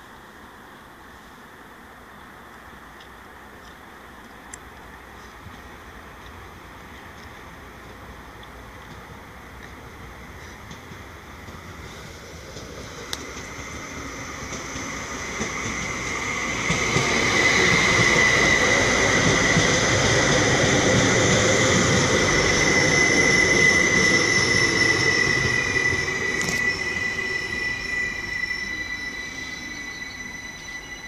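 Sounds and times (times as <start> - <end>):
train passing on rails: 0.0 - 31.0
high steady whine: 13.1 - 31.0.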